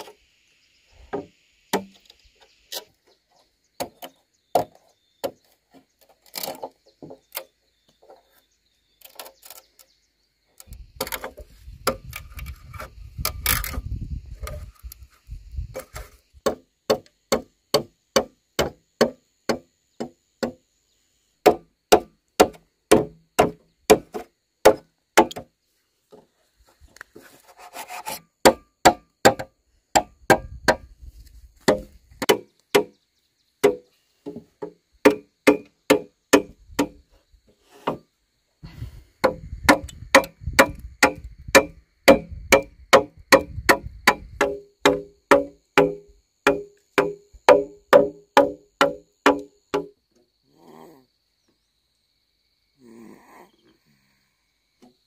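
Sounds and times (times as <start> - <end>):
machete chopping bamboo: 1.2 - 2.0, 15.8 - 20.6, 21.4 - 25.5, 28.4 - 30.9, 31.6 - 32.9, 33.6 - 33.9, 35.0 - 37.0, 39.2 - 49.9.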